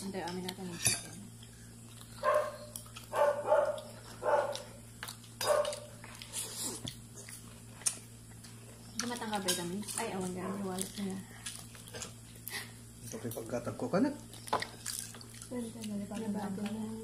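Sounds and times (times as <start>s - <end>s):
dog barking: 2.2s - 4.7s, 5.4s - 5.9s.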